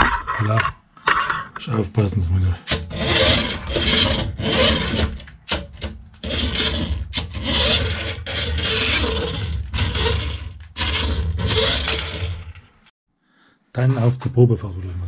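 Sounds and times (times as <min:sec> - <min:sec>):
toy car motor whirring: 0:02.9 - 0:05.0, 0:06.2 - 0:12.3.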